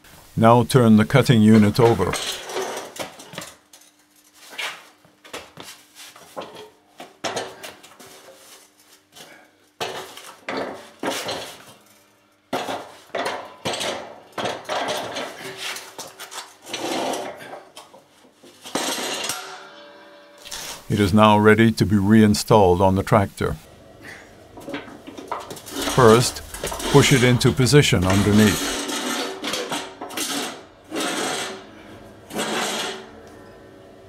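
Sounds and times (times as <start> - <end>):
metal deck clanking and scraping on concrete: 12.6 - 17.6, 18.5 - 20.6, 24.5 - 27.3, 28.1 - 31.6.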